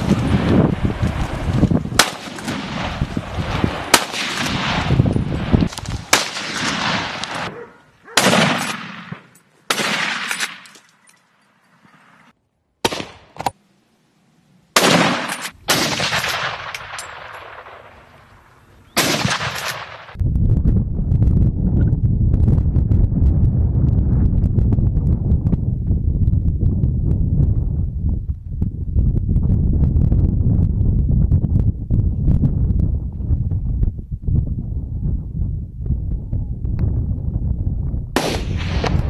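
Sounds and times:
gunshots with echo: 2.0 - 10.7, 14.8 - 18.0, 19.0 - 20.2, 38.2 - 39.0.

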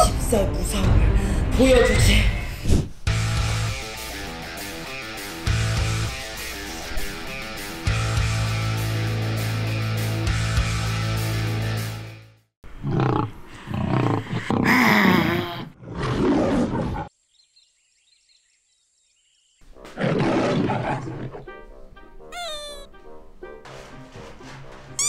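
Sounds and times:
music: 0.0 - 12.5, 19.6 - 25.0
lion roaring: 12.8 - 17.1, 19.9 - 21.5.

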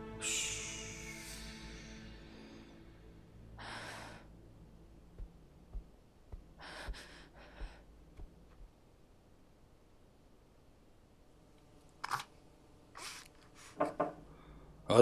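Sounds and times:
slow soft footsteps: 4.8 - 8.8
short breaths: 6.6 - 7.9.

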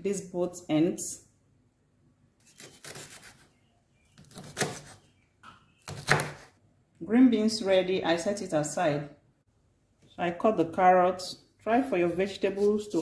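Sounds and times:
knife cutting on wooden board: 2.4 - 3.4, 4.2 - 5.0, 5.8 - 6.5.

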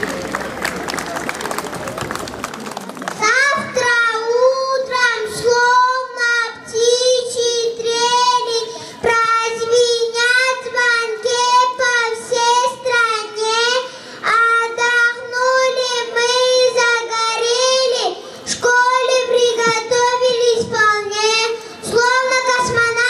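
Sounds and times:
girl singing into a microphone: 3.2 - 23.0
short breaths: 8.7 - 9.1, 13.8 - 14.3, 18.2 - 18.5, 21.6 - 21.9.

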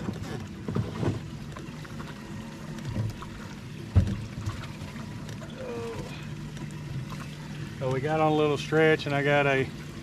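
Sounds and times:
electric trolling motor humming: 0.0 - 10.0
sharp knock on boat: 3.9 - 4.3.

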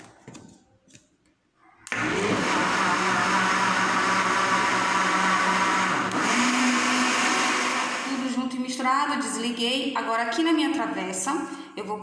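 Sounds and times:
blender running: 1.9 - 8.4.

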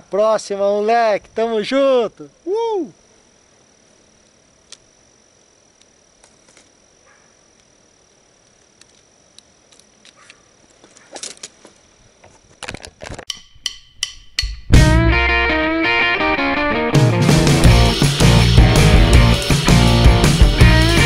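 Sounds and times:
low hiss: 0.0 - 10.1
high-pitched insect tone: 0.0 - 21.0
small clicks: 4.2 - 4.9, 8.4 - 11.6.

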